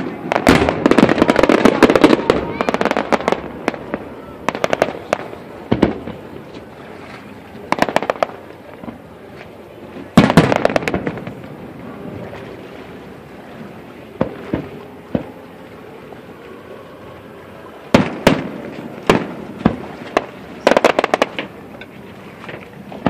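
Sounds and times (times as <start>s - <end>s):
firework bangs: 0.0s - 6.3s, 7.7s - 9.0s, 10.1s - 11.6s, 17.9s - 21.5s
fireworks crackling pops: 0.0s - 6.7s, 7.7s - 9.0s, 10.1s - 11.6s, 17.9s - 23.0s.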